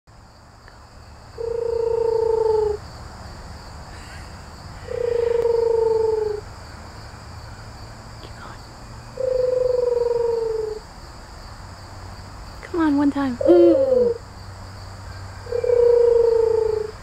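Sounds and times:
owl hooting: 1.4 - 2.8, 3.9 - 6.5, 9.1 - 10.8, 13.4 - 14.2, 15.4 - 17.0.

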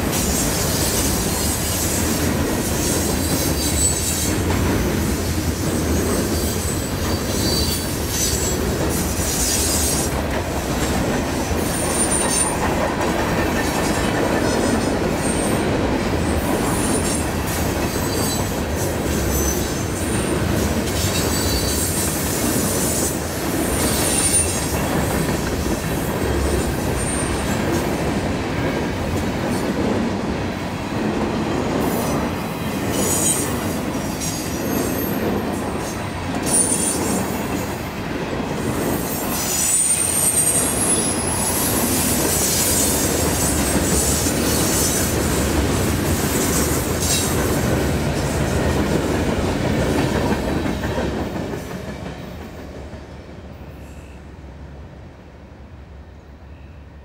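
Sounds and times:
train wheels rumbling on rails: 0.0 - 55.8
high-pitched wheel squeals: 38.9 - 41.8.

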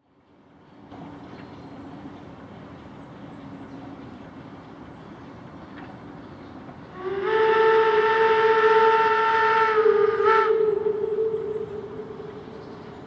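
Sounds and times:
steam locomotive whistle: 6.9 - 12.6.

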